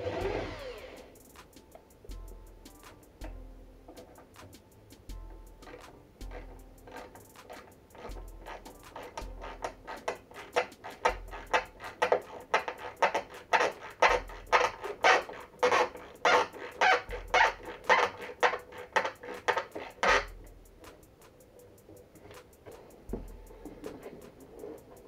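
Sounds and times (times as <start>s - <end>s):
hand tool scraping wood: 5.6s - 21.0s.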